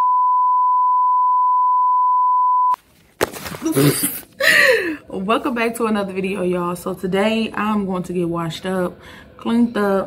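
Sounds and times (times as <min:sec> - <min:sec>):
steady test-tone beep: 0:00.0 - 0:02.8.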